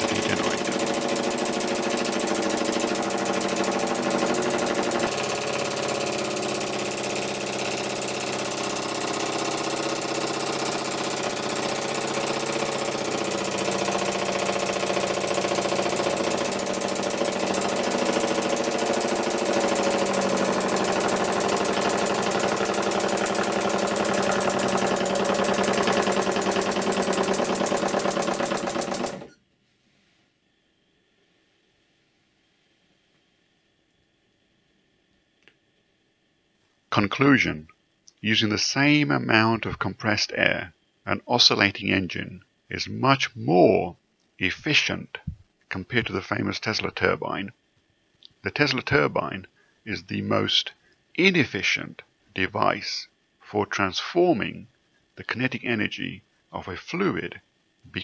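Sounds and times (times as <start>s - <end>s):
small air engine chattering: 0.0s - 29.4s.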